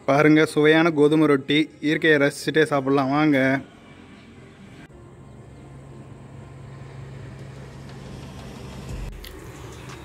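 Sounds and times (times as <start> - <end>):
vehicle engine humming: 3.7 - 10.0.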